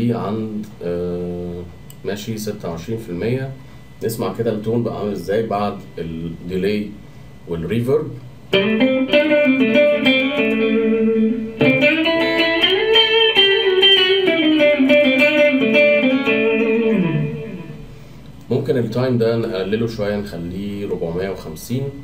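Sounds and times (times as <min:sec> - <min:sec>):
clean electric guitar blues licks: 0:08.5 - 0:18.0.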